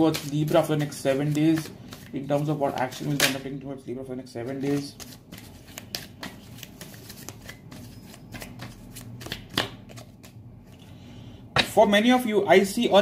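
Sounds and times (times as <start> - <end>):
cards being shuffled: 0.0 - 3.4, 4.4 - 10.8.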